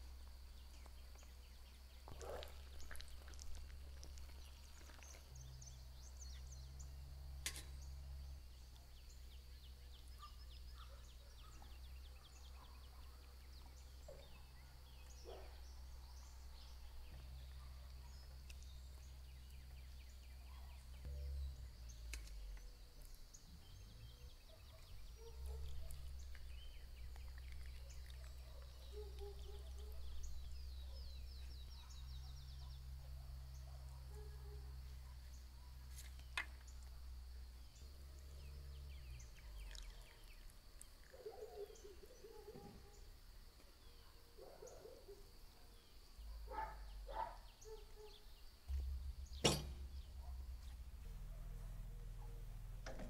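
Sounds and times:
birds chirping: 0.0s - 53.0s
low rumble: 48.7s - 52.9s.

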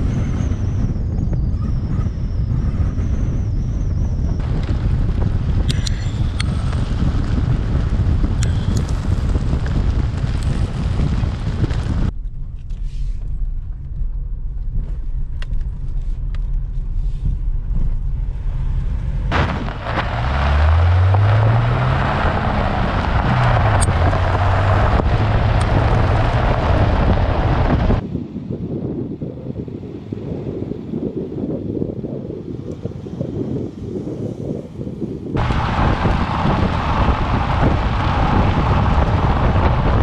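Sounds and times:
wind on microphone: 0.0s - 40.0s
car engine revving: 17.5s - 28.0s, 35.4s - 40.0s
tyres on gravel: 19.2s - 28.0s.

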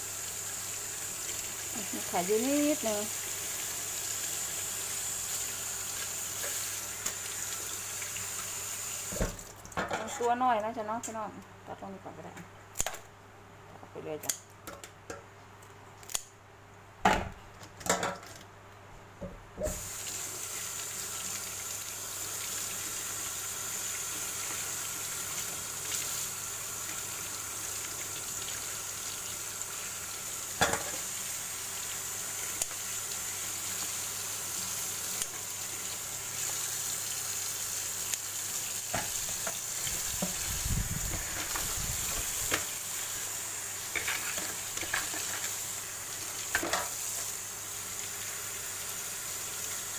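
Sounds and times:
scissors snipping crab shell: 16.0s - 16.3s.

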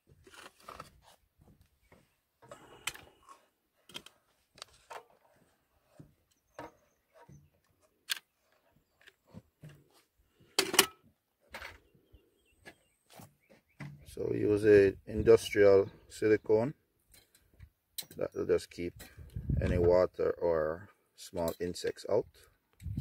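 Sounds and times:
handling clicks and rustles: 0.0s - 11.9s.

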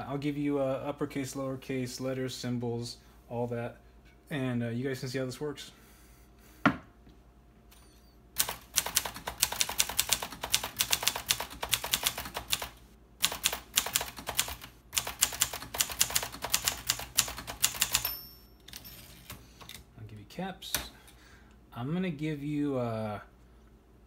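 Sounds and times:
manual typewriter typing: 8.4s - 19.8s
typewriter margin bell ring: 17.6s - 19.4s.

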